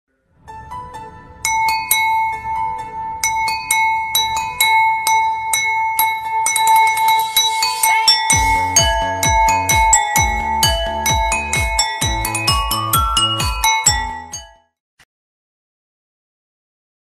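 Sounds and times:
held high tone: 1.4 - 14.6
ringing bell-like struck notes: 1.4 - 14.8
low pulsing beat: 6.7 - 14.4.

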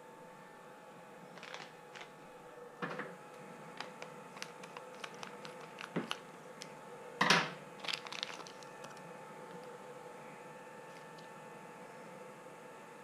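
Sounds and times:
faint steady hum: 0.0 - 13.0
plastic packets crinkling: 1.3 - 2.2, 3.4 - 6.8, 7.8 - 9.8, 10.9 - 11.3.

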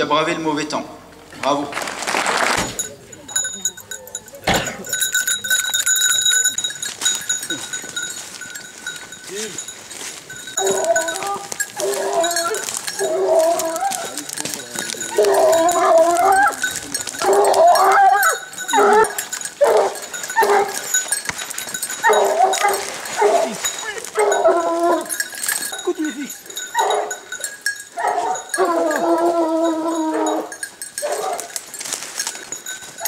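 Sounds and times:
hounds baying: 3.3 - 33.0
dog howling: 10.6 - 20.9, 22.0 - 25.8, 26.7 - 27.2, 28.0 - 31.5.

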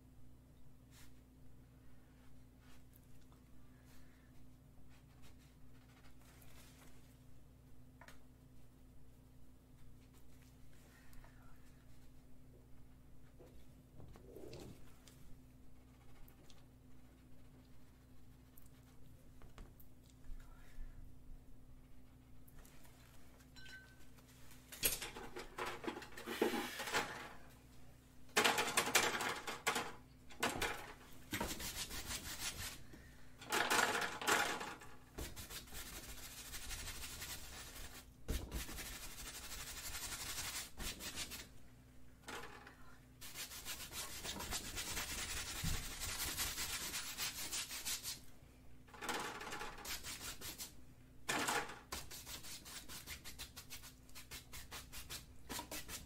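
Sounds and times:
paintbrush scrubbing canvas: 31.4 - 32.8, 35.2 - 41.5, 43.2 - 48.2, 49.8 - 50.8, 51.9 - 56.0.

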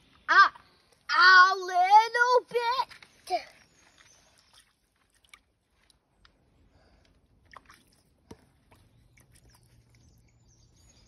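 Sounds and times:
wet squishes in mud: 7.2 - 10.8.

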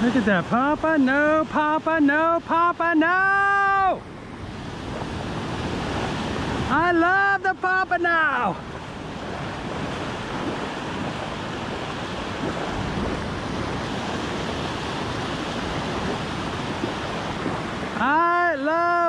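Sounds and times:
waves breaking on beach: 0.0 - 19.0
wind on microphone: 3.8 - 6.9, 8.4 - 18.0.

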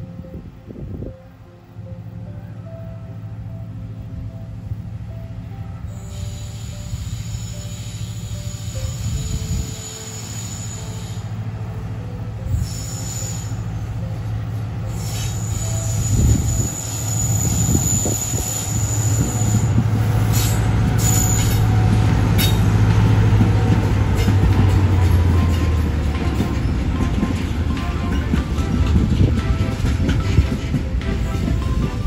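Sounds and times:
diesel locomotive engine: 0.0 - 32.0
high-pitched wheel squeal: 5.9 - 11.2, 12.5 - 13.8, 14.9 - 21.7
wheels clicking over rail joints: 20.3 - 32.0.

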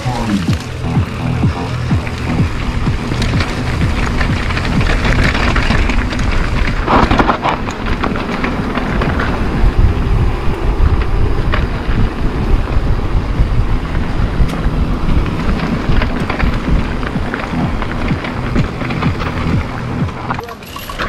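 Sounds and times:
bike rattling over bumps: 0.0 - 21.0
bike rumbling over dirt: 0.0 - 21.0.

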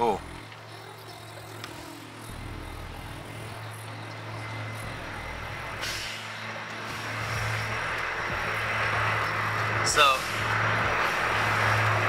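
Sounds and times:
vehicle engine running: 0.0 - 12.0
loud hiss: 5.7 - 7.8.

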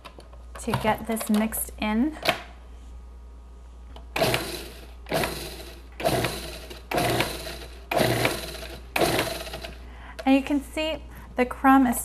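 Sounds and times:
food processor pulsing: 4.2 - 9.8.

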